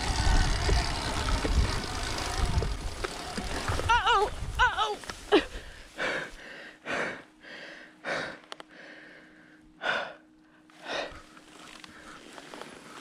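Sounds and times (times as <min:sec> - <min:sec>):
faint steady hum: 0:00.0 - 0:13.0
person breathing hard: 0:05.4 - 0:13.0.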